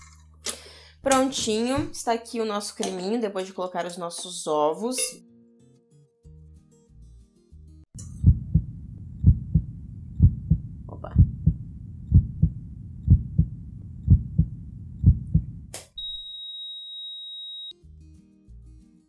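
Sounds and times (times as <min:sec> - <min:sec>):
heartbeat thumps: 0:08.2 - 0:15.7.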